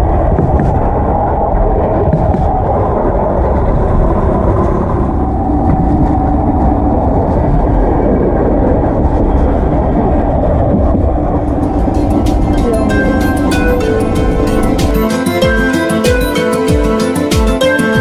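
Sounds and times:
funicular car rumbling on rails: 0.0s - 18.0s.

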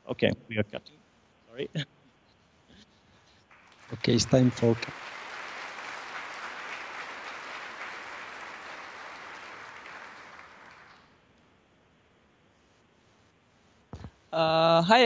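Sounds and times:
audience applauding: 3.5s - 11.2s.

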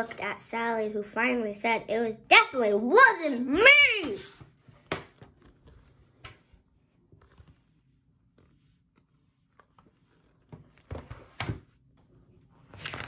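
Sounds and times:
book pages rustling: 4.3s - 13.0s
book knocks: 4.7s - 5.5s.

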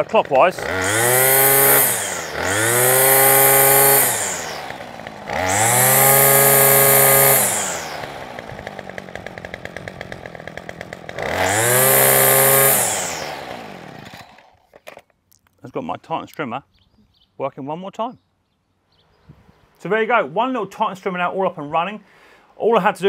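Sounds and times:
strimmer engine revving and idling: 0.0s - 14.6s.

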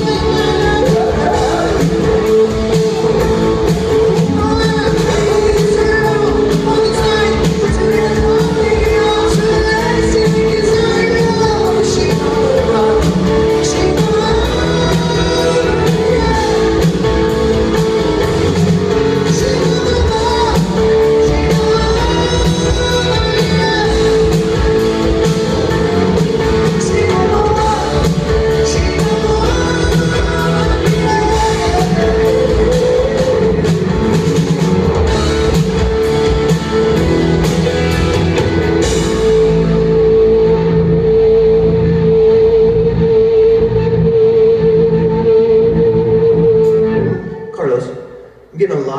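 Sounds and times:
man singing lead vocal: 0.0s - 36.6s
electric guitars: 0.0s - 48.5s
bass: 0.0s - 48.9s
drums: 0.0s - 48.9s
live rock band playing: 0.0s - 48.9s.

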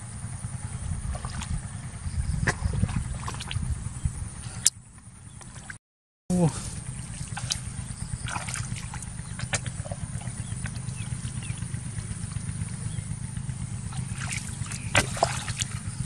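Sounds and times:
steady low rumble: 0.0s - 16.0s
boots squelching through mud: 2.4s - 3.6s, 6.5s - 11.8s, 13.9s - 16.0s
sharp splashes or knocks: 2.4s - 3.6s, 6.9s - 11.6s, 13.9s - 16.0s.

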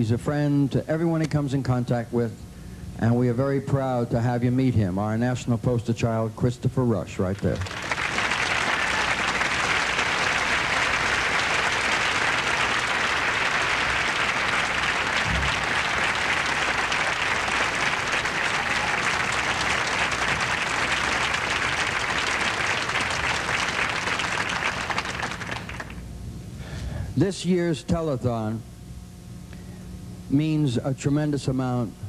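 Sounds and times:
audience applauding: 7.5s - 26.0s.

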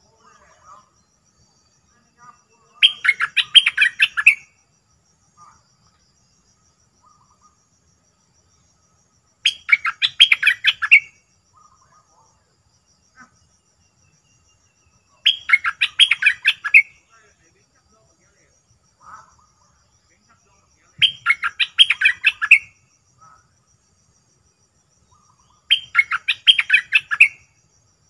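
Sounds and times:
bird singing rapid notes: 2.7s - 4.5s, 9.4s - 12.0s, 14.1s - 17.3s, 21.0s - 22.8s, 25.0s - 27.5s.

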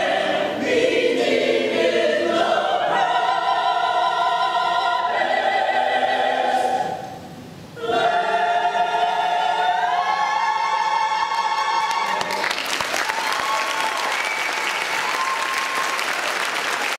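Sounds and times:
choir singing held chord: 0.0s - 12.4s
audience applause: 11.8s - 16.9s.

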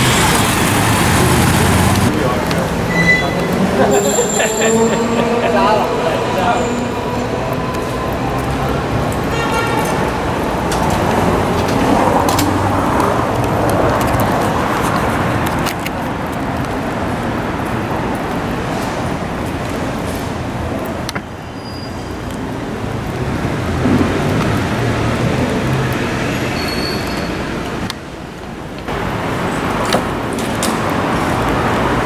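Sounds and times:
city street traffic: 0.0s - 32.0s
high squeal: 2.8s - 9.1s, 21.4s - 22.1s, 26.4s - 27.5s.

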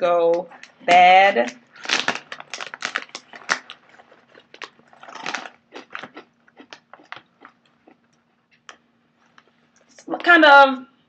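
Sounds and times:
person chewing crunchy snacks: 1.7s - 9.6s.

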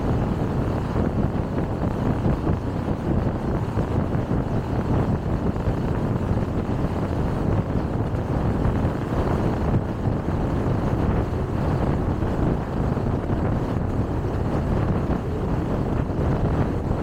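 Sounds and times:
car road noise: 0.0s - 17.0s.

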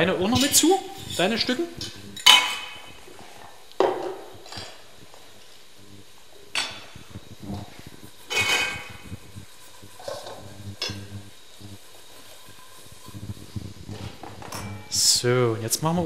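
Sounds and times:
steel bowls and pots clattering: 0.3s - 2.9s, 8.3s - 8.9s.

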